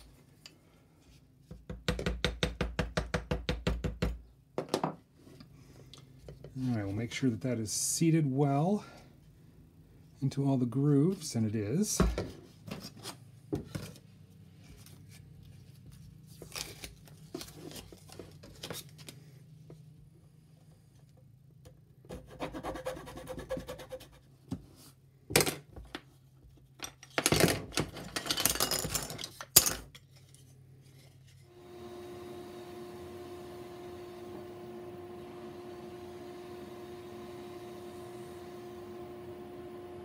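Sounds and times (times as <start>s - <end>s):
rotary tool humming: 31.5s - 40.0s.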